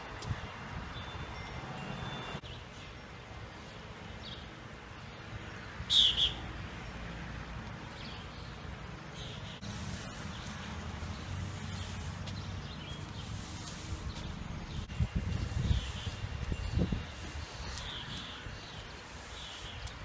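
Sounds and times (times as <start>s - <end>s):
bird chirping: 5.9s - 6.5s.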